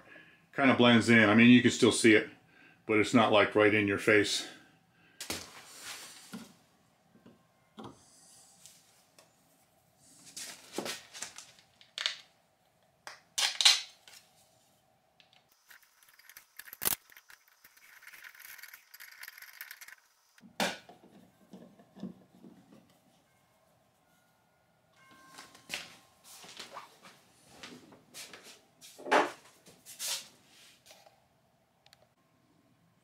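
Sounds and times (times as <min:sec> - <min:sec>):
rustling or scraping: 0:05.4 - 0:06.6, 0:10.0 - 0:11.8.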